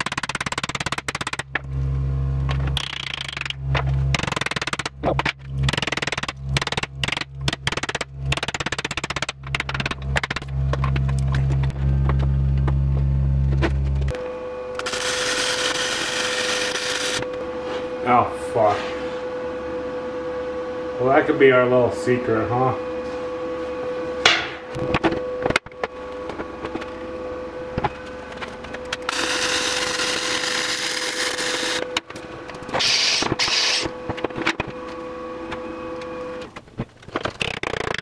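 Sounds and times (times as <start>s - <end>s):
steady low hum: 0.0s - 37.9s
power tool cutting metal: 14.2s - 17.4s, 28.9s - 32.0s, 32.7s - 34.0s.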